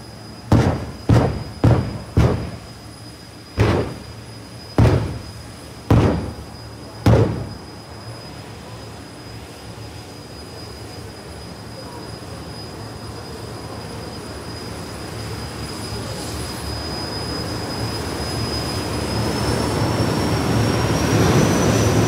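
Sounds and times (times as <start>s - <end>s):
loud bangs: 0.5s - 2.9s, 3.6s - 7.8s
low steady rumble: 0.5s - 2.9s, 3.6s - 7.8s.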